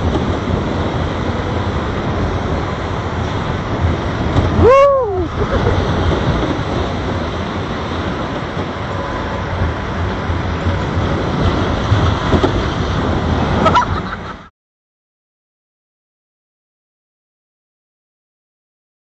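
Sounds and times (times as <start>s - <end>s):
roller coaster train rumbling: 0.0s - 14.5s.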